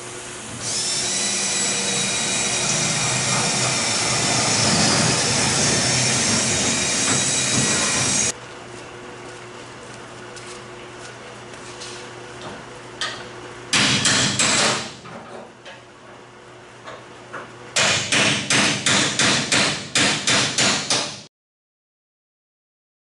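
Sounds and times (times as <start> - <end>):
hammer striking sheet steel: 2.4 - 8.3, 13.0 - 15.0, 17.8 - 21.3.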